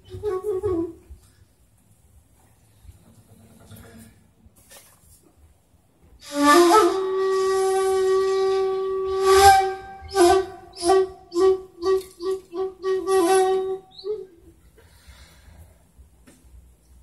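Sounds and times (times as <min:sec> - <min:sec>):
breathy bamboo flute notes: 0:00.0 - 0:01.4, 0:06.2 - 0:15.5.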